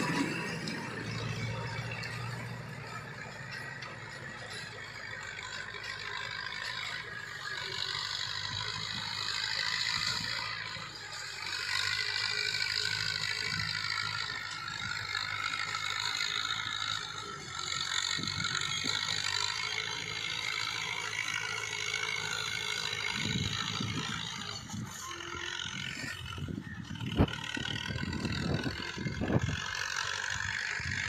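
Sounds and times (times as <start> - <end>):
distant tractor diesel engine: 0.0 - 31.0
low rumbling: 22.3 - 31.0.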